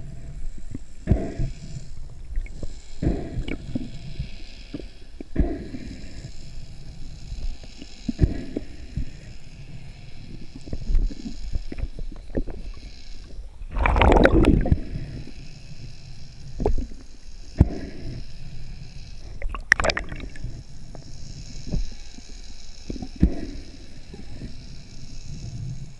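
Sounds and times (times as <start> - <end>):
muffled underwater rush: 13.7 - 14.8.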